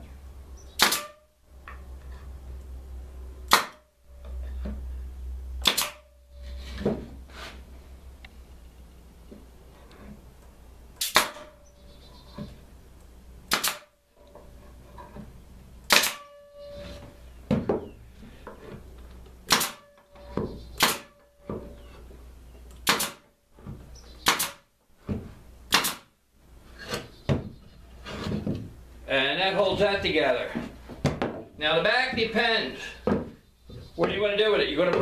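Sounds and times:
nail gun shots into wood: 0.8 - 1.2, 3.5 - 3.8, 5.6 - 6.1, 11.0 - 11.5, 13.5 - 13.9, 15.9 - 16.3, 19.5 - 19.9, 20.8 - 21.2, 22.8 - 23.3, 24.2 - 24.7, 25.7 - 26.1.

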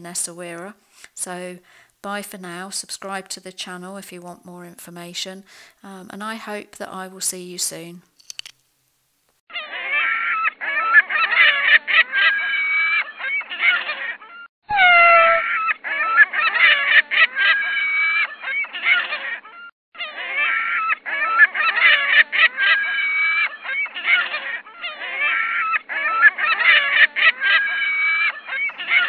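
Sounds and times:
gulls calling: 9.8 - 29.0.

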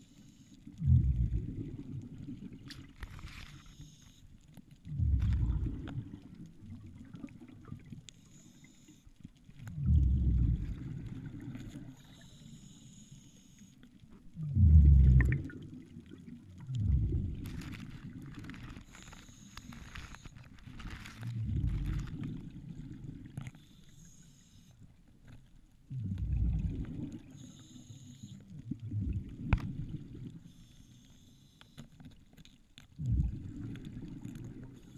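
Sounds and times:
exhaled bubbles rushing: 0.8 - 3.0, 4.9 - 8.0, 9.7 - 12.0, 14.4 - 18.8, 25.9 - 27.4, 28.6 - 30.4, 33.0 - 34.8.

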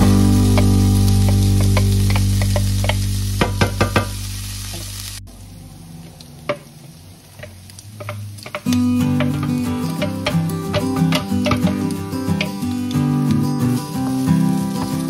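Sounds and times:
soft background music: 0.0 - 4.6
bacon frying in oil: 0.0 - 15.0
spatula tapping and scraping: 1.3 - 4.1, 7.4 - 12.6.

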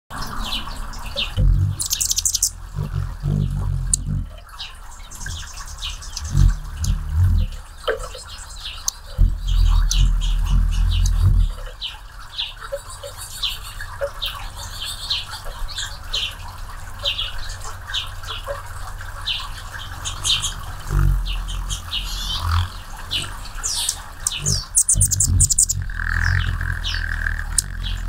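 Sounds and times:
hummingbird chip notes: 1.0 - 12.4, 19.2 - 28.0
hum of hummingbird wings: 1.0 - 14.9, 16.0 - 28.0.

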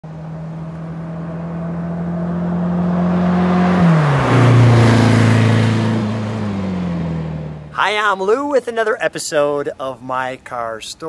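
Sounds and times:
car engine driving past: 0.1 - 7.8.

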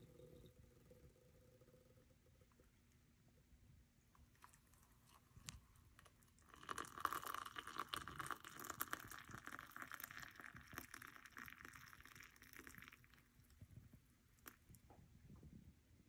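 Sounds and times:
water pouring into a mug: 4.4 - 14.8.

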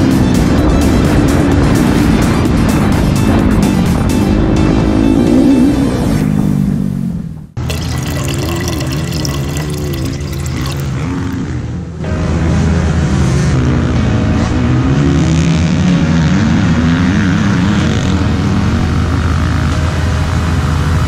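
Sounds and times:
background music: 0.0 - 21.0.

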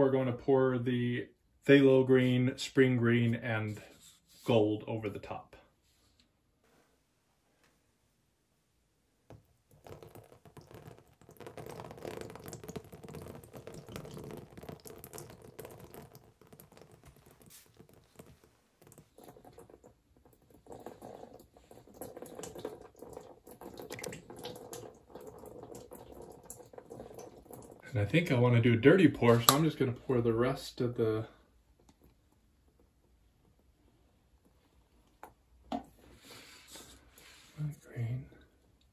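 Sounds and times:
paint pattering onto metal grill: 14.7 - 25.0.

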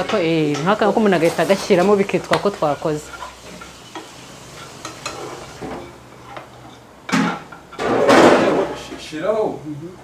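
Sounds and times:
clinks of stirring in a pan: 0.0 - 7.9
loud sizzling hiss: 1.1 - 5.7.

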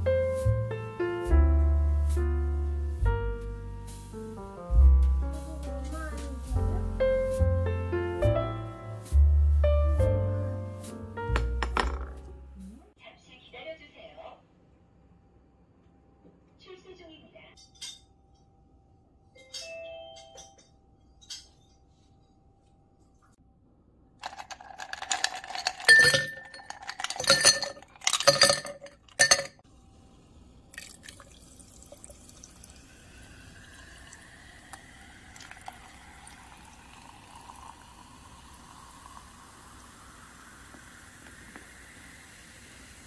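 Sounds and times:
cola pouring fizzing over ice: 24.2 - 29.4, 30.6 - 43.0
ice cubes clinking in glass: 24.2 - 29.6.

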